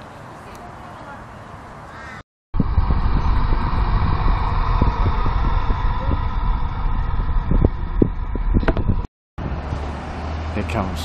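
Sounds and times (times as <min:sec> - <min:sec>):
wind buffeting microphone: 0:02.6 - 0:09.9.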